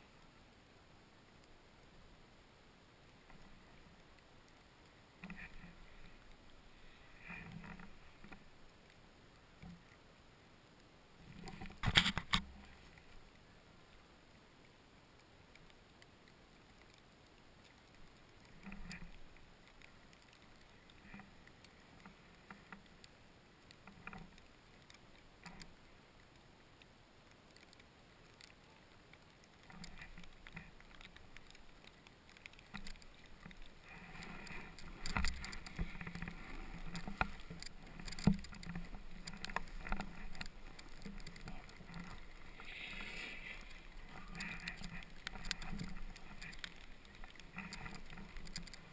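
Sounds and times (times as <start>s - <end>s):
faint rustles: 3.0s - 48.9s
snowboard hissing on snow: 42.6s - 43.6s.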